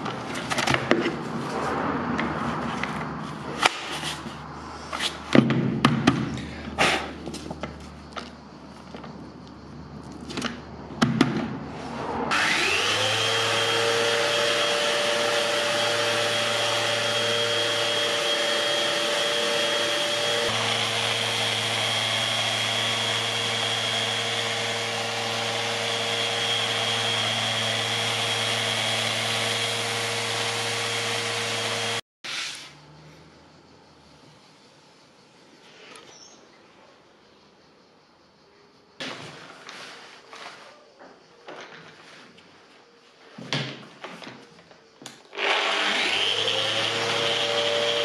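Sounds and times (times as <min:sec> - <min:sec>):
orbital sander running: 0:12.3 - 0:32.0, 0:45.4 - 0:48.0.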